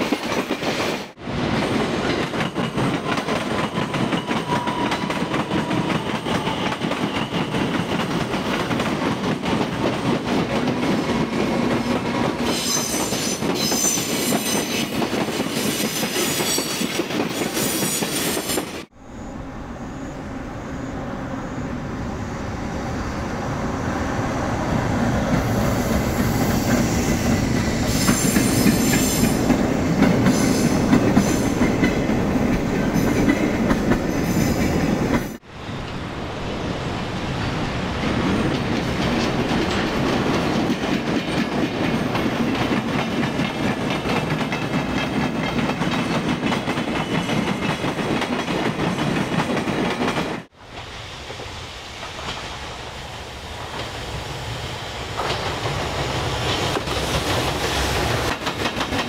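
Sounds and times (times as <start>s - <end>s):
freight train wheels clattering: 38.0s - 50.5s, 55.1s - 59.0s.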